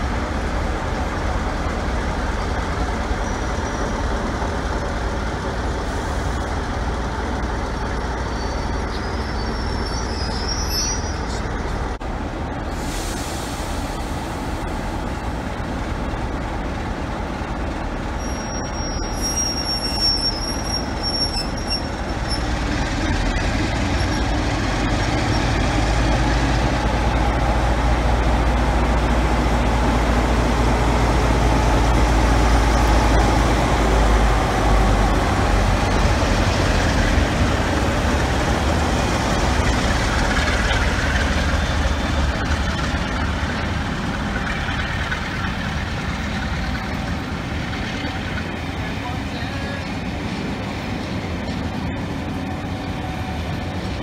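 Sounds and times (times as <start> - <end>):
diesel locomotive engine drone: 0.0 - 54.0
train wheels rumbling on rail: 0.0 - 54.0
high wheel squeals: 3.1 - 4.1, 8.2 - 11.7, 18.2 - 22.7.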